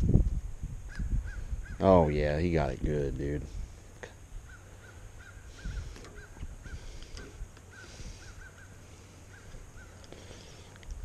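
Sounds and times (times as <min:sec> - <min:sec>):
low wind rumble: 0:00.0 - 0:11.0
bird calling in clipped notes: 0:04.5 - 0:11.0.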